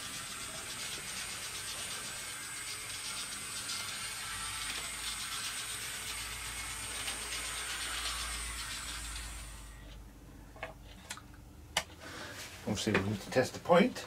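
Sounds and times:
electric motor whining: 0.0 - 10.0.

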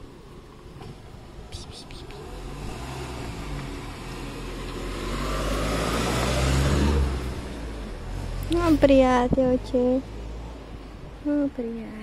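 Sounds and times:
motor vehicle driving past: 1.8 - 11.2.

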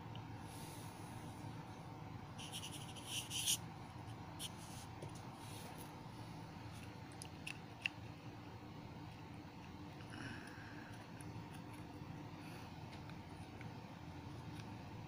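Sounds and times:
pen scratching on paper: 2.4 - 3.6.

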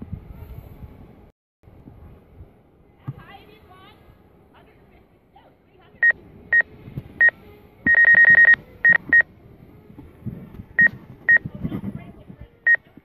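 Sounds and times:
short high warning beeps: 7.9 - 9.2.

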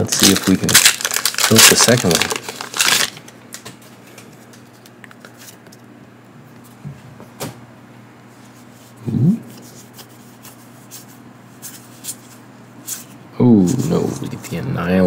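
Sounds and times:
cards rustling and ticking: 0.0 - 5.9
person humming: 9.0 - 9.5.

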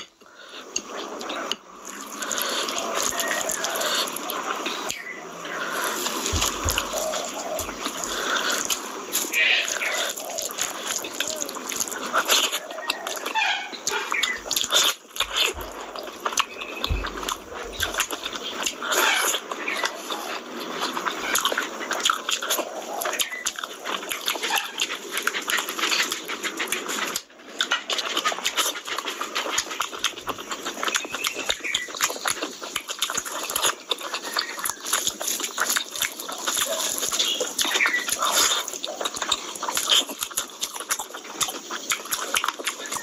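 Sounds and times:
chewing with mouth clicks: 0.0 - 43.0
lip smacks: 0.0 - 43.0.

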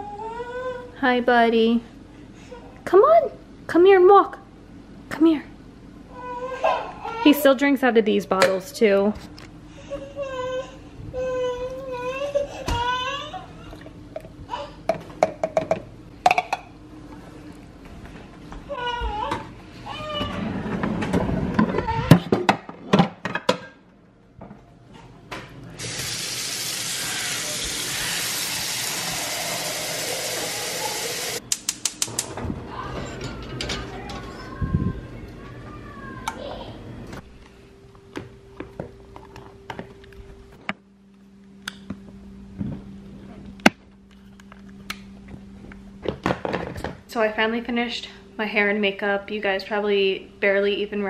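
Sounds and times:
water running from tap: 25.8 - 31.4
gas stove igniter clicking: 31.5 - 32.3
low steady hum: 32.3 - 51.0.

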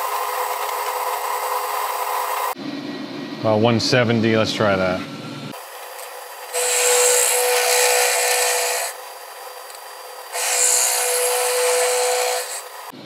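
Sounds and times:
milling machine running: 5.6 - 13.0
milling machine cutting metal: 6.0 - 13.0.

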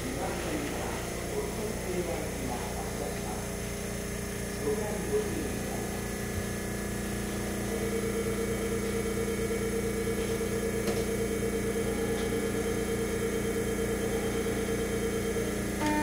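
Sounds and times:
higher pulsing note: 15.8 - 16.0.

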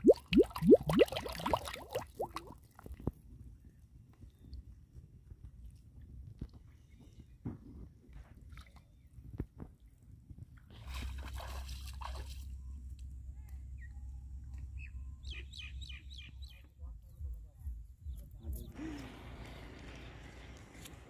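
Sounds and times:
water splashing and dripping: 0.0 - 2.6.

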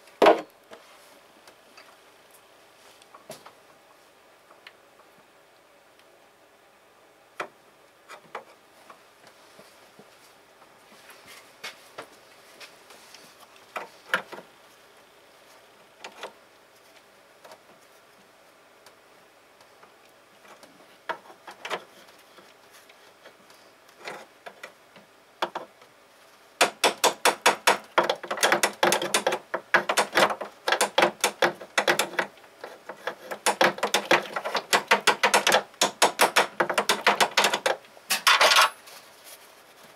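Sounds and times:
hand tool clicks and knocks: 26.6 - 32.3, 33.0 - 38.7.

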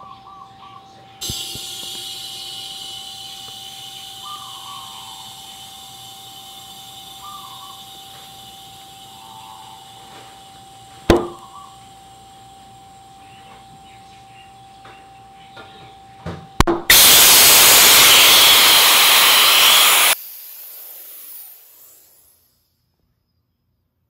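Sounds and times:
air blow gun hissing: 1.2 - 11.4, 16.9 - 22.4.

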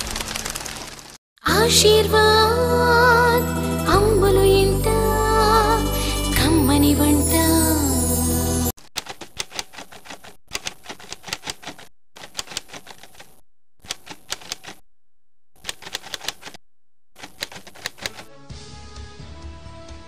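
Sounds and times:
typewriter key clacks: 8.9 - 14.8, 15.6 - 16.6, 17.2 - 18.3.

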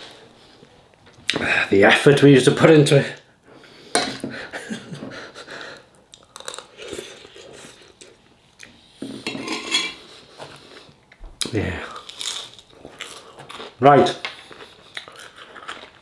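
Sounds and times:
person chewing: 5.8 - 8.9, 10.1 - 16.0.

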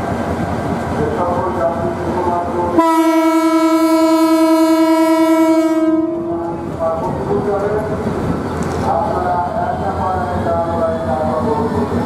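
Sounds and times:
locomotive horn blast: 2.8 - 6.5.

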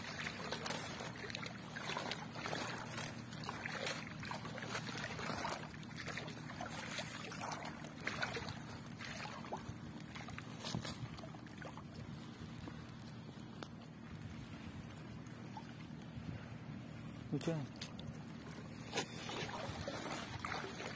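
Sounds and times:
water splashing and dripping: 0.0 - 13.8, 19.2 - 20.9
steady low hum: 0.0 - 20.9.

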